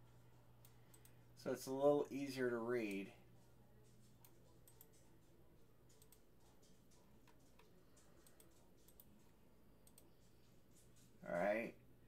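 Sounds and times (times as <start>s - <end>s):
low steady hum: 0.0s - 12.0s
computer mouse clicks: 0.6s - 1.2s, 3.8s - 11.2s.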